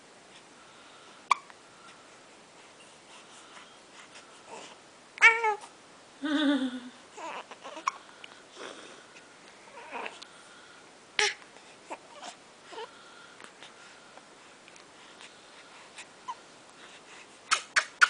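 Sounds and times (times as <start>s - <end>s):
baby squealing and cooing: 5.2s - 5.7s, 7.2s - 8.0s, 17.5s - 18.0s.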